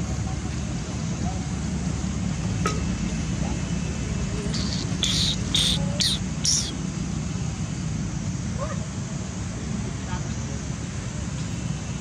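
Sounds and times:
steady low hum: 4.0 - 7.6
insect buzzy chirps: 4.5 - 6.8.

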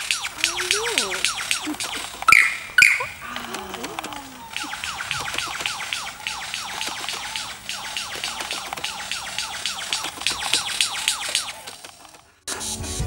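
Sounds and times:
lyrebird singing: 0.0 - 12.2
sharp bird clicks: 0.0 - 12.3.

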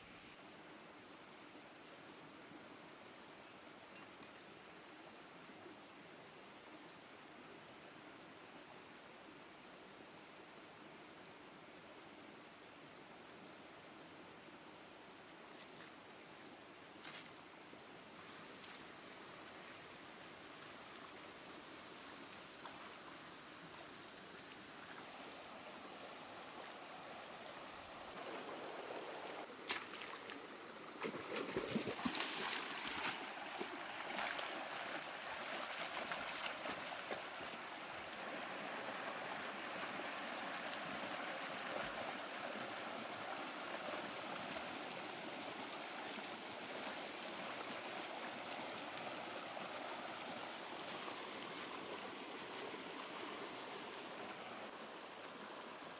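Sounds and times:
stream running over rocks: 0.0 - 55.9
splashes of person wading: 29.6 - 30.4, 31.0 - 37.6.

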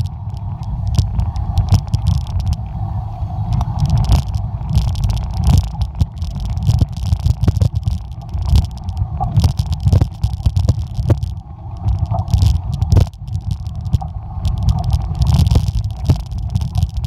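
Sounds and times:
bike rattling and clacking: 0.0 - 2.8, 3.6 - 17.0
wind rumble on microphone: 0.0 - 17.0.

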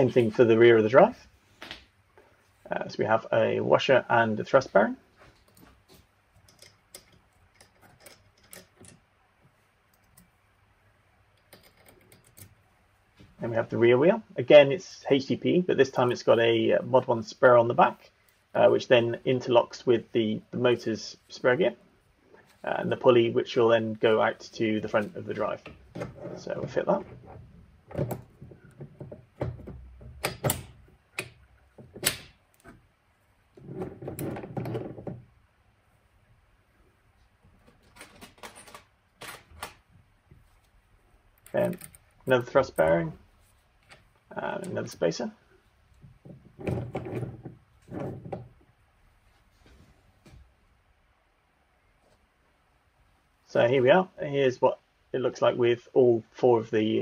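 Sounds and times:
small metal clicks: 6.4 - 9.0, 11.3 - 12.6, 41.3 - 42.1.

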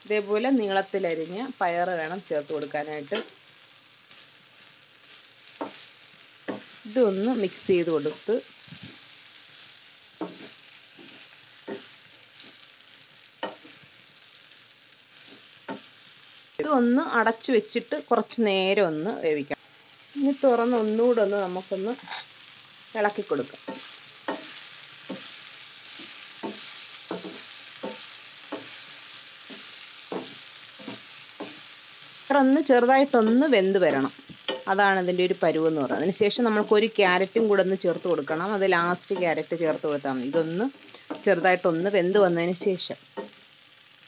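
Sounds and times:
vegetables sizzling in a frying pan: 0.0 - 44.0
spatula strokes in a pan: 3.2 - 16.6, 21.9 - 32.3
wooden spatula scraping: 10.2 - 12.7, 23.5 - 31.7.

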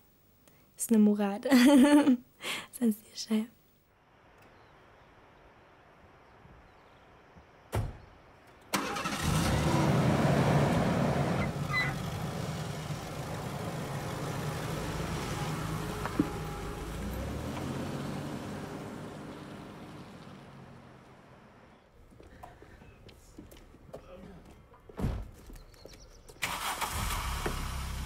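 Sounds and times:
thump: 7.7 - 8.1, 25.0 - 25.3
truck engine starting and revving: 8.7 - 21.7, 26.4 - 28.0.

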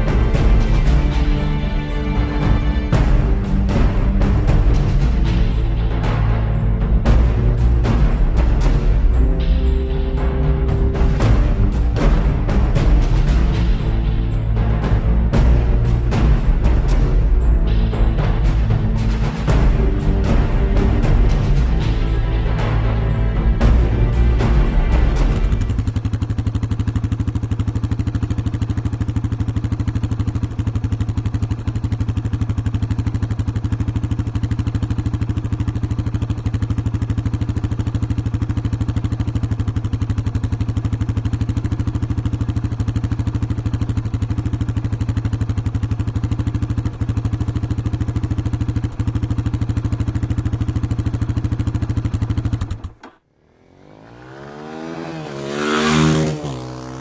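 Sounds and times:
vehicle engine rising in pitch: 53.3 - 57.0.

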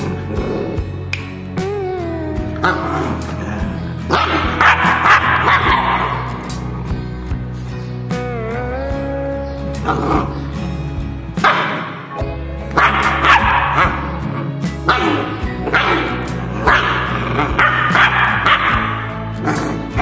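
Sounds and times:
background music: 0.0 - 20.0
puppy yapping: 4.1 - 6.6, 12.7 - 14.3, 14.9 - 20.0.

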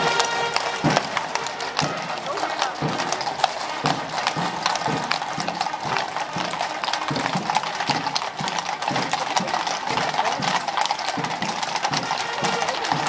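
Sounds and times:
horse hooves on pavement: 0.0 - 13.0.

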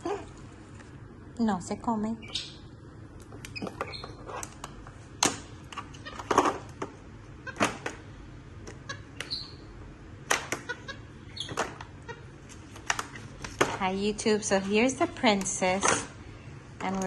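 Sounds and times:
monkey squeak: 9.2 - 9.6.

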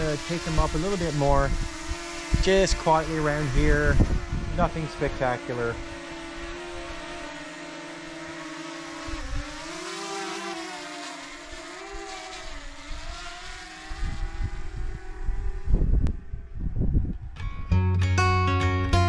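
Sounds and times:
wind buffeting microphone: 0.0 - 7.2, 9.0 - 9.8, 11.9 - 17.8
drone propellers buzzing: 0.0 - 17.8.

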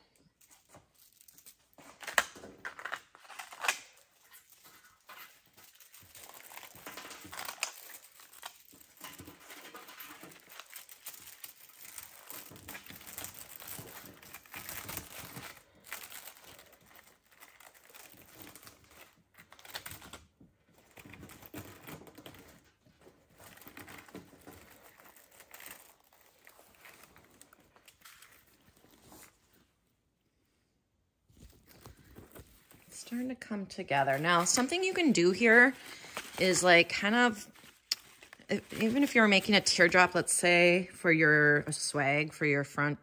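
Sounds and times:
small clicks and crackles: 0.1 - 28.9
greenery and decorations rustling: 31.2 - 40.7.

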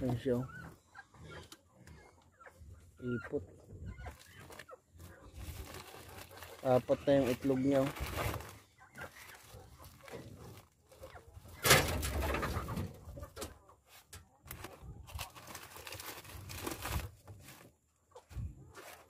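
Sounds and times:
straw and paper rustling: 3.9 - 19.0.

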